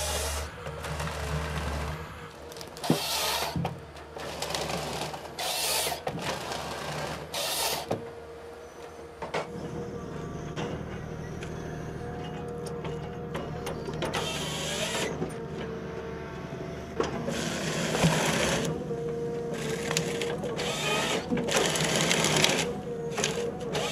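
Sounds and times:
harsh sawing bursts: 0:00.0 - 0:03.6, 0:04.2 - 0:07.9, 0:19.5 - 0:23.9
engine and hydraulic hum: 0:00.0 - 0:23.9.

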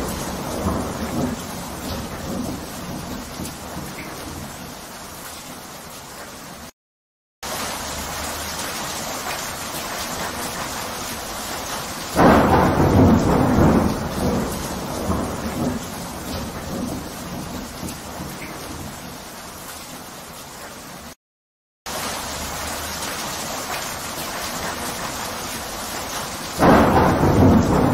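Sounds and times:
thunder clap rumbling: 0:00.0 - 0:04.6, 0:12.2 - 0:19.0, 0:26.6 - 0:27.9
rain falling steadily: 0:00.0 - 0:06.8, 0:07.4 - 0:21.2, 0:21.9 - 0:27.9.

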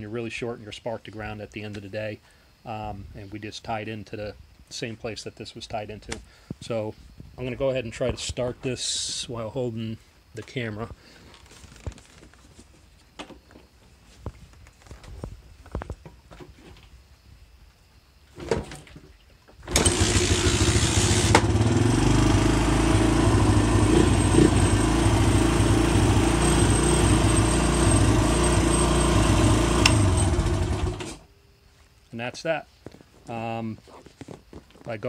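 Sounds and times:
atv engine running: 0:19.7 - 0:31.3.

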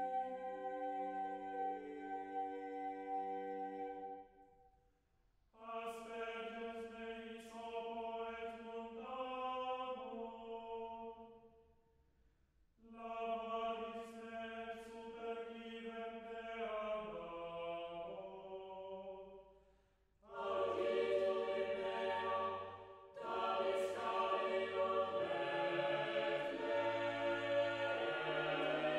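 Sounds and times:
voices singing slow chant: 0:00.0 - 0:04.2, 0:12.8 - 0:19.5, 0:20.2 - 0:28.9.

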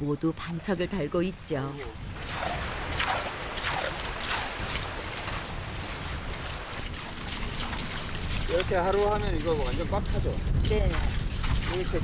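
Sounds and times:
seawater washing over shells: 0:01.8 - 0:12.0
hand hoes scraping sand: 0:02.6 - 0:12.0.

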